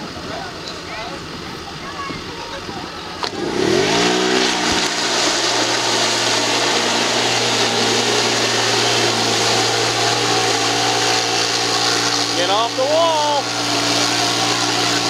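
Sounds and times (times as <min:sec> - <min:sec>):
wheels spinning in mud: 0:00.0 - 0:15.0
quad bike engine revving: 0:03.1 - 0:15.0.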